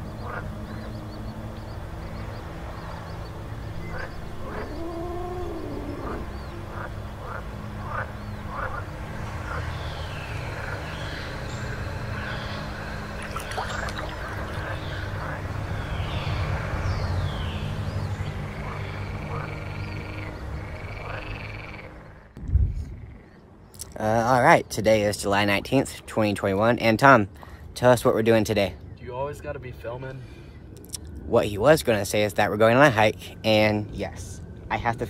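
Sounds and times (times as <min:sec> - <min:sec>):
low drone: 0:00.0 - 0:23.5
frog-like croaks: 0:03.8 - 0:08.9, 0:10.3 - 0:16.6, 0:18.5 - 0:23.4
creaky creature calls: 0:04.5 - 0:06.9.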